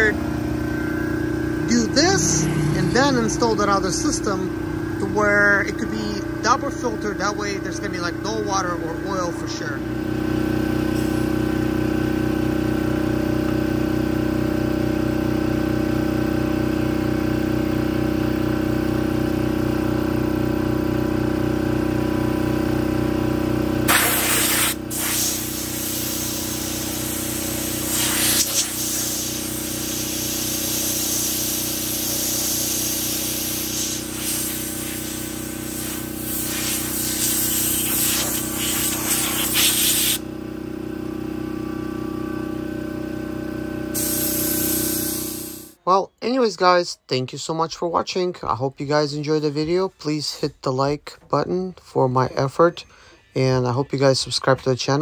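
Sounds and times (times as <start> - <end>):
air compressor humming: 0.0 - 45.8
compressed air hissing: 10.9 - 11.4, 23.9 - 40.2, 43.9 - 45.8.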